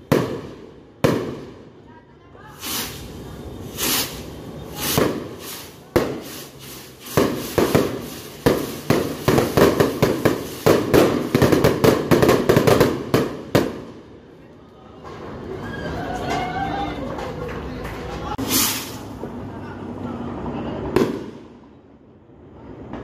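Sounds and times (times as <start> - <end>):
firework cracks and pops: 2.6 - 14.0, 18.2 - 19.2
rockets whooshing: 2.6 - 14.0, 18.4 - 19.3.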